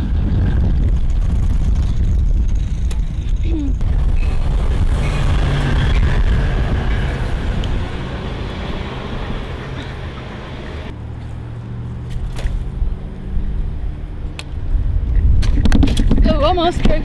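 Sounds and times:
wind buffeting microphone: 0.0s - 10.9s, 12.5s - 17.0s
street traffic: 2.2s - 17.0s
car passing close by: 4.2s - 14.3s.

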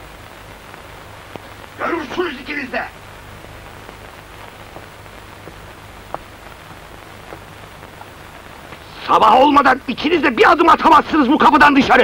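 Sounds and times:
steady hiss: 0.0s - 12.0s
faint ticks: 0.4s - 1.7s, 3.6s - 8.9s.

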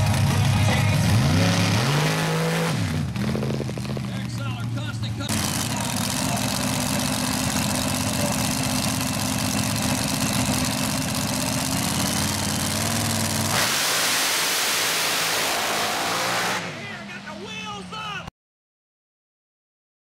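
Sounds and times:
buggy engine idling: 0.0s - 1.8s, 2.9s - 13.6s.

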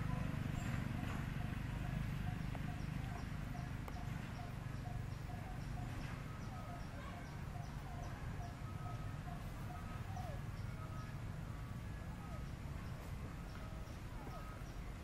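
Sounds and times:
bird repeating low note: 0.0s - 11.2s.

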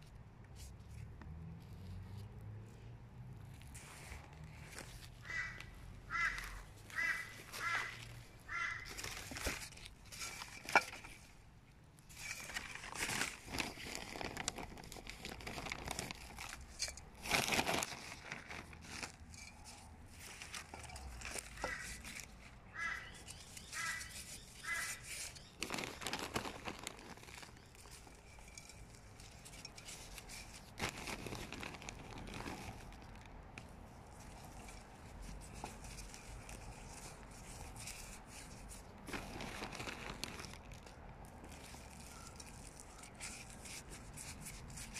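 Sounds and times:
soil rustling: 0.0s - 44.9s
plastic crinkling: 3.5s - 44.9s
bird calling: 5.2s - 9.1s, 22.7s - 25.6s.

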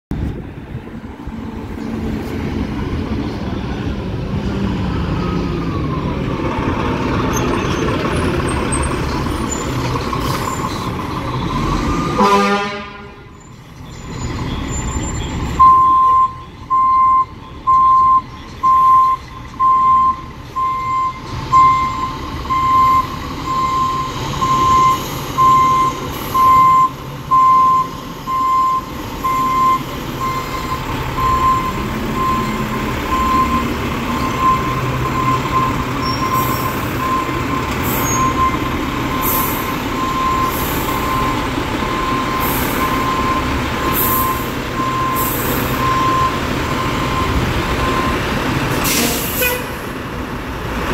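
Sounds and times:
fire engine running: 0.1s - 50.9s
short horn toot: 12.2s - 13.3s, 48.8s - 49.8s
reversing alarm beeps: 13.4s - 48.2s.

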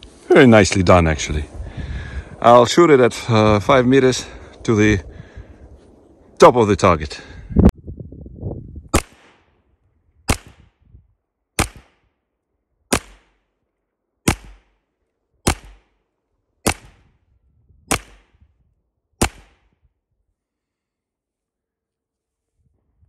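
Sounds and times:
pistol shots: 8.9s - 9.5s, 10.3s - 10.7s, 11.6s - 12.1s, 12.9s - 13.4s, 14.3s - 14.8s, 15.4s - 16.0s, 16.6s - 17.0s, 17.9s - 18.4s, 19.2s - 19.7s.

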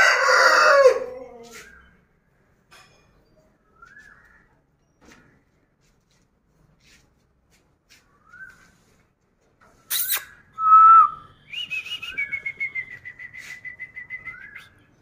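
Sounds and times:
fast whistled trill: 9.9s - 14.8s.

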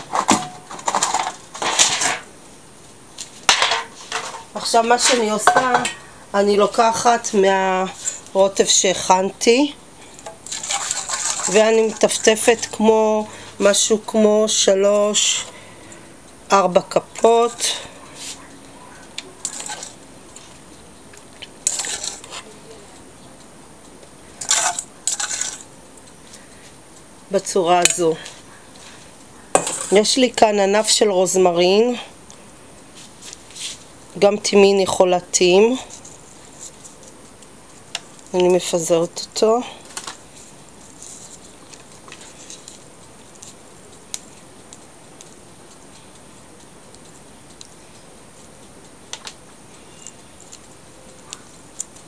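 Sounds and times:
scraping and rustling: 0.0s - 2.3s, 3.2s - 9.1s, 10.0s - 13.9s, 17.2s - 23.4s, 24.2s - 26.8s, 27.8s - 30.4s, 32.8s - 34.0s, 34.6s - 38.7s, 39.8s - 52.0s
leaves crackling on foil: 3.0s - 52.0s.

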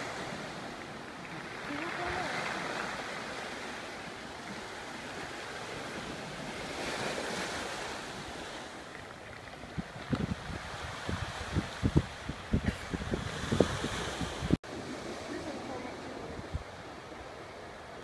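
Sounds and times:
waves washing up pebble beach: 0.0s - 18.0s
wind hitting microphone: 9.5s - 15.5s.

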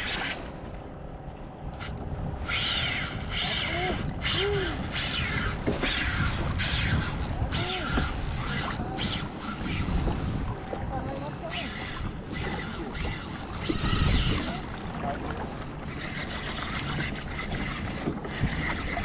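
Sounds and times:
fishing reel drag buzzing: 1.8s - 10.1s, 11.5s - 14.8s, 15.9s - 19.0s.

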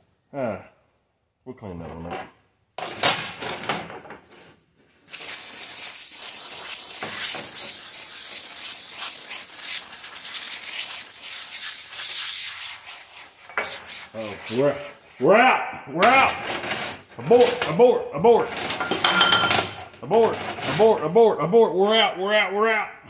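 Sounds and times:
aerosol spray hiss: 5.1s - 15.3s.

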